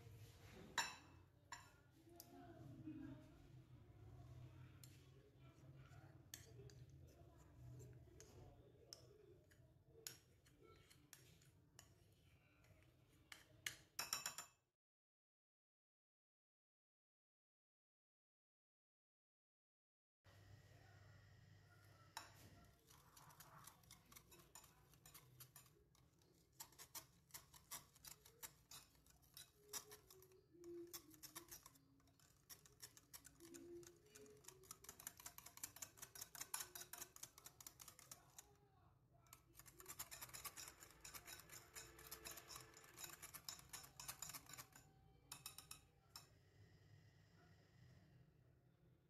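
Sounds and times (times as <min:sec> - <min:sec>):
whisk ticking against glass bowl: 0:22.2 - 0:38.6, 0:39.3 - 0:46.3.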